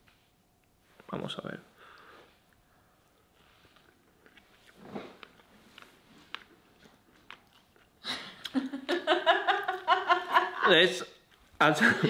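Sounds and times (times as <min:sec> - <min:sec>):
quiet chewing: 0:01.9 - 0:08.6.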